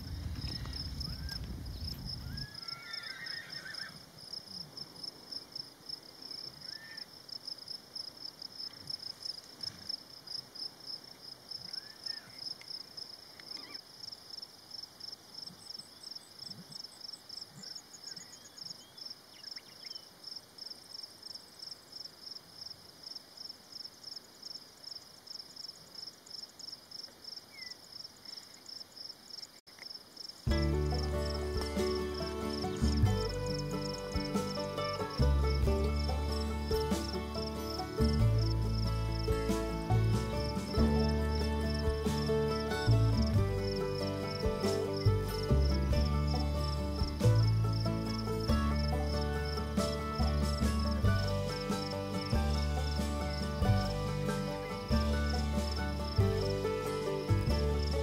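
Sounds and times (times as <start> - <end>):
insect chirping: 0.0 - 58.0
faint bird chirps: 6.3 - 7.1, 11.6 - 12.5, 13.3 - 13.8, 15.4 - 20.2, 27.4 - 28.7.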